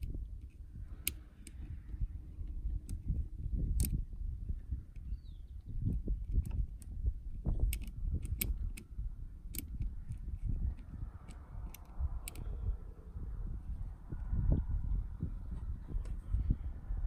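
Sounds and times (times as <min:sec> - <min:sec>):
steady low rumble: 0:00.0 - 0:17.0
light clicks and taps on cover: 0:05.9 - 0:12.5.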